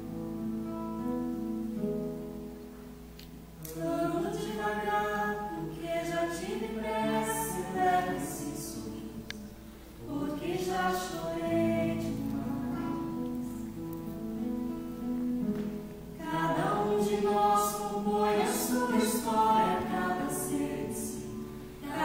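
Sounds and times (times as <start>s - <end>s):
acoustic guitar chords: 0.0s - 22.0s
people singing: 3.7s - 13.1s, 16.2s - 22.0s.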